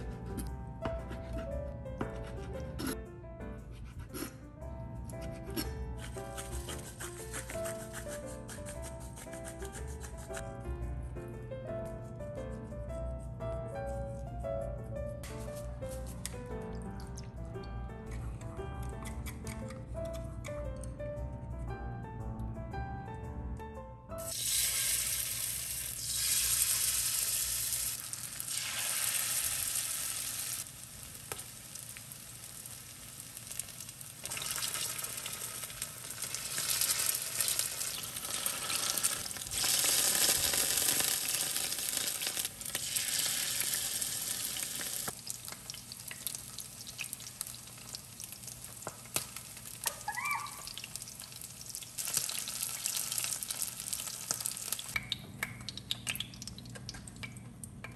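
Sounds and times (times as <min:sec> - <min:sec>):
chicken frying in oil: 0:24.3 - 0:55.0.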